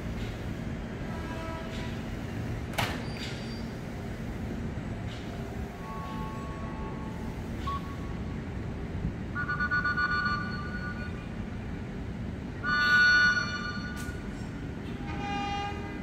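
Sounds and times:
low station rumble: 0.0s - 16.0s
train horn blasts: 1.1s - 2.0s, 15.0s - 16.0s.

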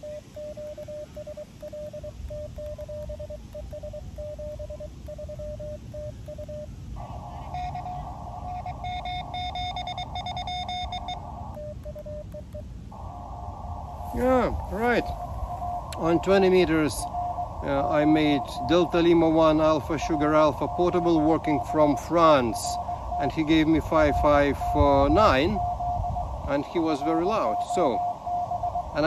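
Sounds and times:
morse code sidetone beeps: 0.0s - 12.8s, 14.0s - 29.0s
higher keyed morse tone: 0.0s - 29.0s
radio receiver hiss: 0.0s - 29.0s.

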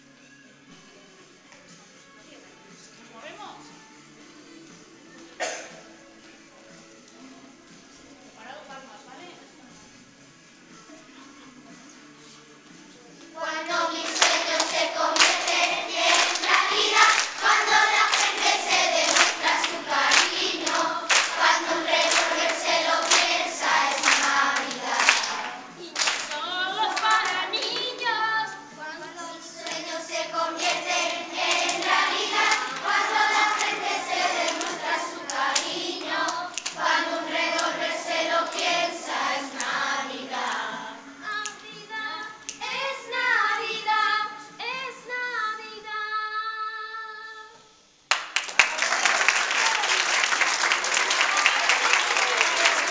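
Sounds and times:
children singing together: 13.4s - 41.3s, 42.6s - 44.4s
hand claps: 14.0s - 28.0s, 30.6s - 36.8s, 37.5s - 37.8s, 48.1s - 52.9s.

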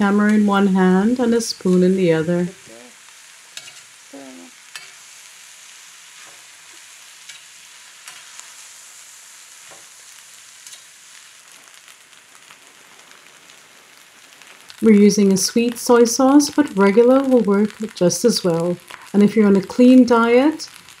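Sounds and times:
rice sizzling in a skillet: 0.0s - 21.0s
metal spatula clicking on pan: 7.3s - 8.3s, 10.6s - 10.9s.

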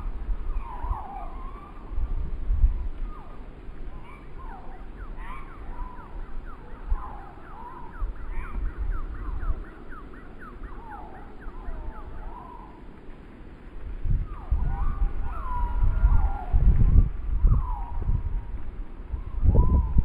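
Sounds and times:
wind buffeting microphone: 0.0s - 20.0s
wavering whistles: 0.5s - 2.0s, 3.0s - 12.9s, 17.4s - 18.3s, 19.1s - 20.0s.

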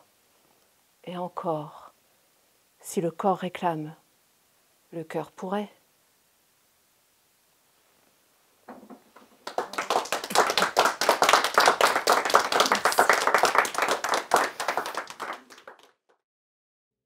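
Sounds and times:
people clapping: 9.2s - 16.2s.

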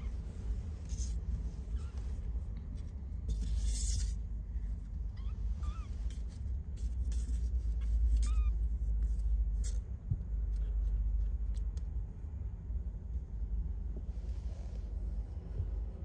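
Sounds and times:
steady low rumble: 0.0s - 16.0s
kitten squeaky mews: 5.1s - 6.3s, 7.7s - 8.7s.

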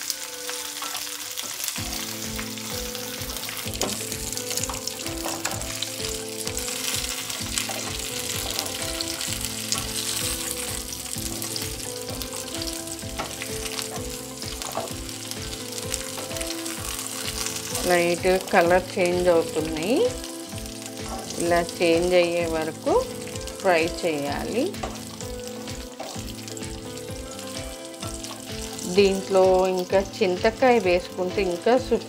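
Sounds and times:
background music: 0.0s - 32.0s
chillies sizzling in hot oil: 0.0s - 32.0s
spatula turning food in pan: 0.0s - 32.0s.

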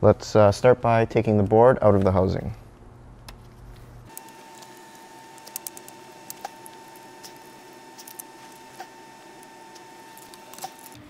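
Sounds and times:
faint steady whine: 2.3s - 11.0s.

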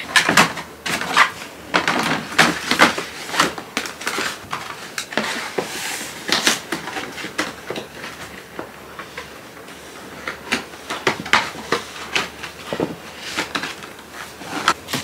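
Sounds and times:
cardboard scraping and rustling: 0.0s - 15.0s.

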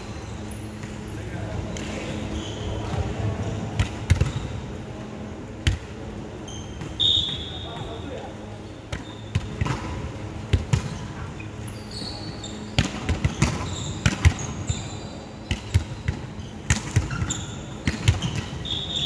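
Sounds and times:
sneakers squeaking on floor: 1.7s - 4.6s, 6.4s - 8.2s, 8.8s - 9.8s, 10.7s - 19.0s.

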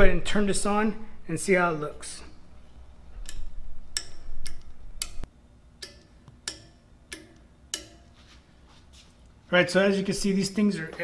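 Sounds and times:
switches clicking: 3.2s - 8.0s.

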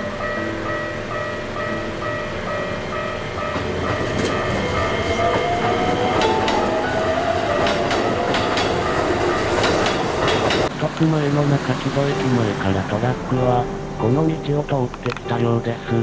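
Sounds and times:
level crossing bell dinging: 0.0s - 10.5s
electric train motor whine: 0.0s - 14.3s
train wheels clattering: 1.1s - 12.5s.

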